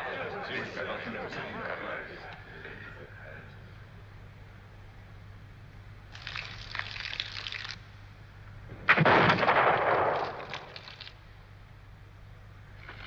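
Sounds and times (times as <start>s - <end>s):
rifle shot with booming tail: 8.8s - 10.6s.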